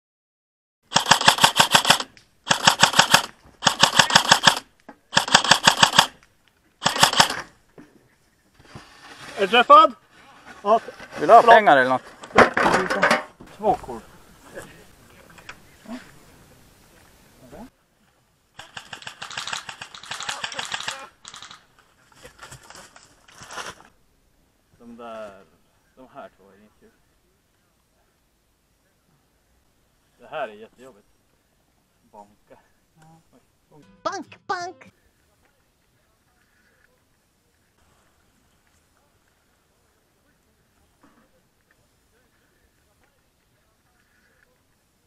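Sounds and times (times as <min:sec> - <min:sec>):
airsoft rifle bursts: 0:00.9 - 0:06.2, 0:06.8 - 0:07.6, 0:18.6 - 0:21.7.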